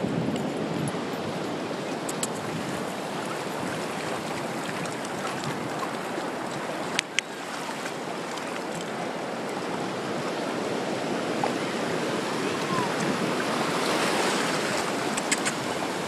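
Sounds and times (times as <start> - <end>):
ocean surf washing over sand: 0.0 - 16.0
sharp clicks: 2.1 - 2.4, 15.1 - 15.6.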